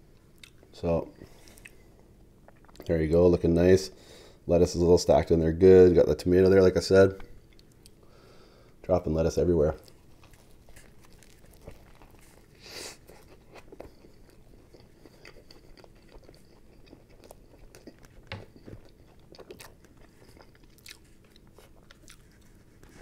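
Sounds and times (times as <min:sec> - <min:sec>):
man chewing sandwich: 0:00.1 - 0:02.9, 0:09.8 - 0:23.0.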